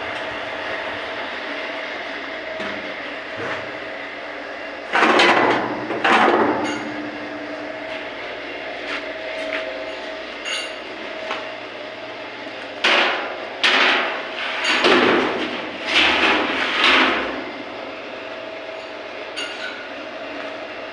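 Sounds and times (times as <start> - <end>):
mixer motor humming: 0.0 - 13.6.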